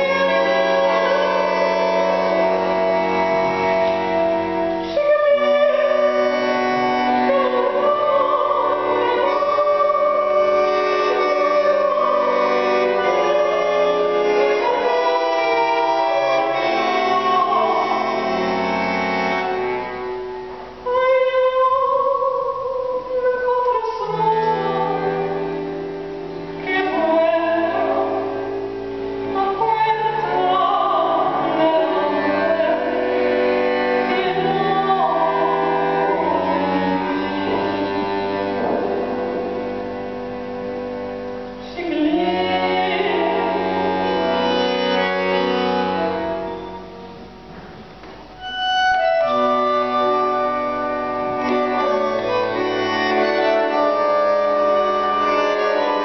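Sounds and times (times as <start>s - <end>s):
woman singing with vibrato: 0.0s - 19.5s, 20.7s - 25.7s, 26.6s - 40.0s, 41.5s - 47.3s
bandoneon chords: 0.0s - 56.0s.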